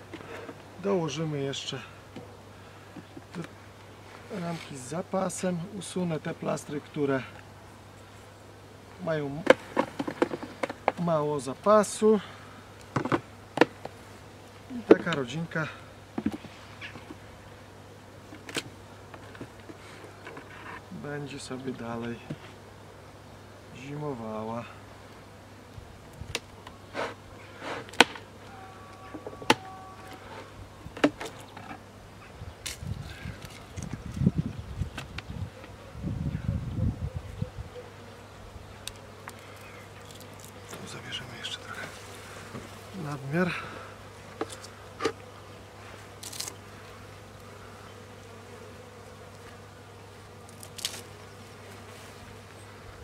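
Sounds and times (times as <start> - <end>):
honeybees buzzing: 0.0 - 53.0
hive tool scraping wood: 18.4 - 20.9, 26.3 - 28.4, 29.0 - 31.9, 38.8 - 52.6.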